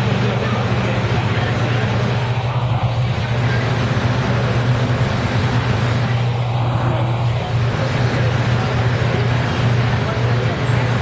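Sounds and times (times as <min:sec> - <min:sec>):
bus engine drone: 0:00.0 - 0:11.0.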